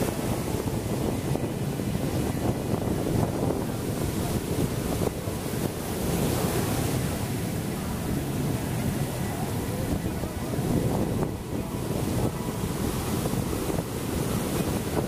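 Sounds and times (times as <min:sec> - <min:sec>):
ocean surf breaking: 0:00.0 - 0:15.0
wind buffeting microphone: 0:00.0 - 0:15.0.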